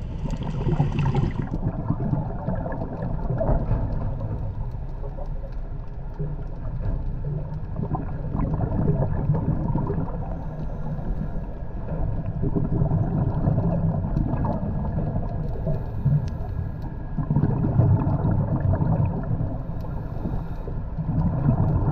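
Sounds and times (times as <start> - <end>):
underwater rumbling and gurgling: 0.0 - 21.9.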